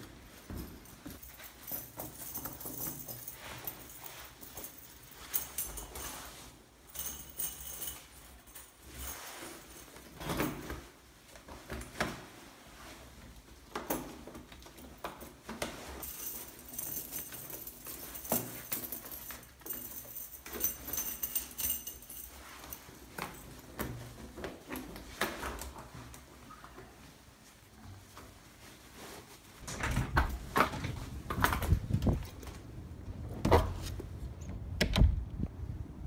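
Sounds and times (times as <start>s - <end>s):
metal chains jangling: 0.4s - 10.7s, 15.0s - 24.3s.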